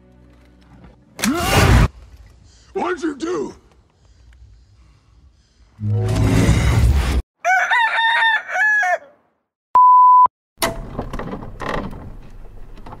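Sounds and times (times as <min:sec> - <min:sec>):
loud beep: 0:09.8 - 0:10.3.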